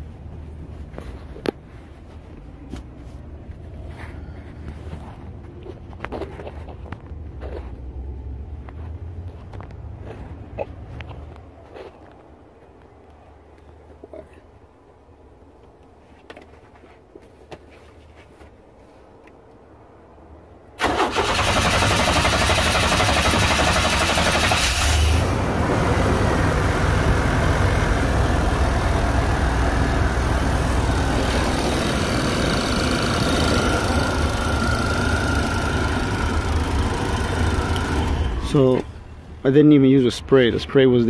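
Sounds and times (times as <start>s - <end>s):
car engine starting and running: 20.7s - 39.5s.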